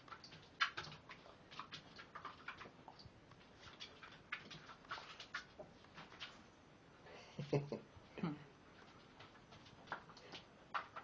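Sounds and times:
faint clicks and taps: 0:08.8 - 0:11.0.

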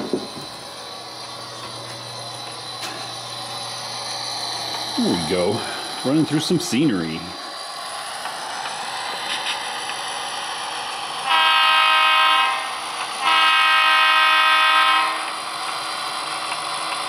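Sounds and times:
model diesel engine running: 0:00.0 - 0:11.6, 0:12.6 - 0:17.0
model locomotive horn: 0:11.2 - 0:15.4.

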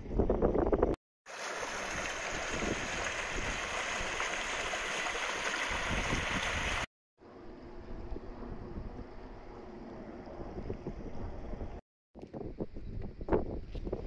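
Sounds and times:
stream splashing over rocks: 0:01.3 - 0:06.9.

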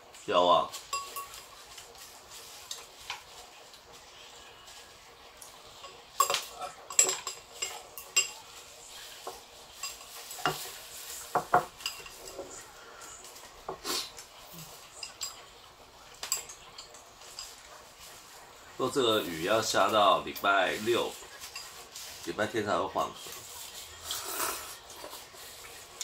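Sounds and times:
chopsticks and ladle clinking on dishes: 0:00.7 - 0:03.4, 0:05.4 - 0:12.6, 0:13.3 - 0:18.1, 0:19.8 - 0:22.3.

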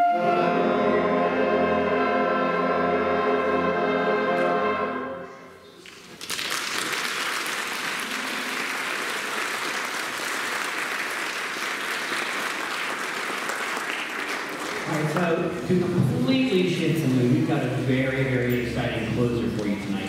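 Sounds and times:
audience applause: 0:05.8 - 0:15.6.

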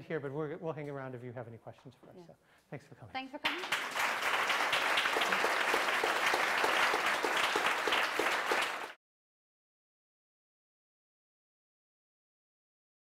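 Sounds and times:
small audience applauding: 0:03.4 - 0:09.0.

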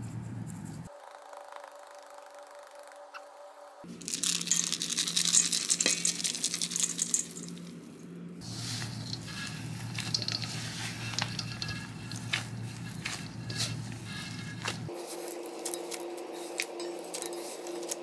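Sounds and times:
nuts pattering into metal bowl: 0:04.0 - 0:07.8, 0:08.4 - 0:18.0
hands kneading dough squishing: 0:08.4 - 0:18.0.

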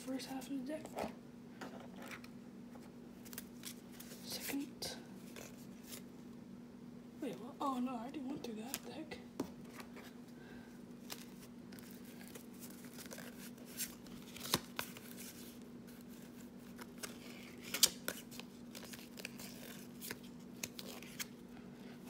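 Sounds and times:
faint steady hum: 0:00.0 - 0:22.0
cards sliding and snapping: 0:11.1 - 0:15.5, 0:16.1 - 0:21.4.

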